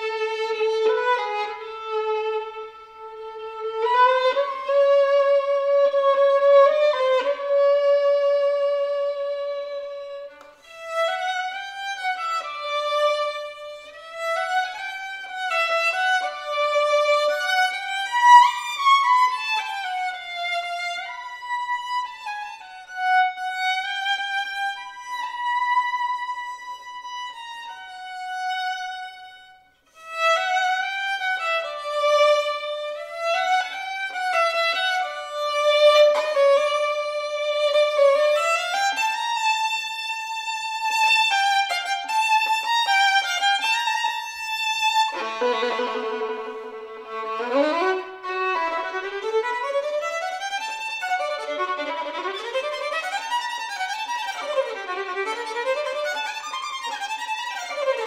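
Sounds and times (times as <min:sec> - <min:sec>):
solo violin melody: 0:00.0 - 0:58.0.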